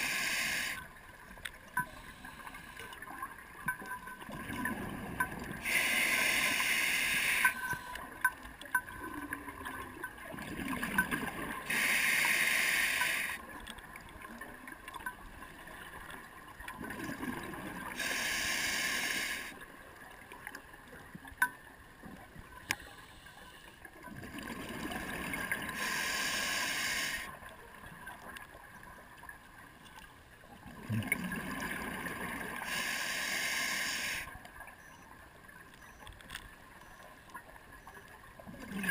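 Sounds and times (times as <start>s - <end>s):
diver breathing through regulator: 0.0s - 0.9s, 5.6s - 8.0s, 11.7s - 13.4s, 18.0s - 19.6s, 25.7s - 27.3s, 32.6s - 34.3s
faint clicks: 0.6s - 4.2s, 6.4s - 10.2s, 11.0s - 14.1s, 20.3s - 23.9s, 34.0s - 38.2s.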